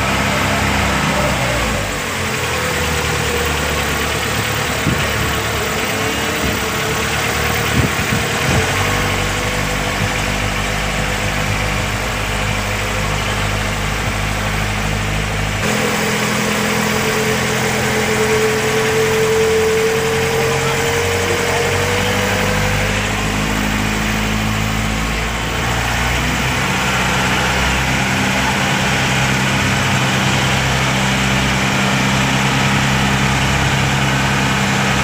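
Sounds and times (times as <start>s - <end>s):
boat engine running: 0.0s - 35.0s
water rushing along hull: 0.0s - 35.0s.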